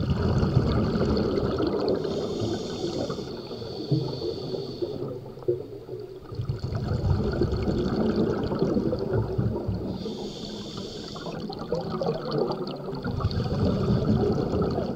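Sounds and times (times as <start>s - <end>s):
exhaled bubbles underwater: 0.0s - 14.9s
regulator inhale hiss: 2.0s - 5.5s, 9.8s - 11.6s.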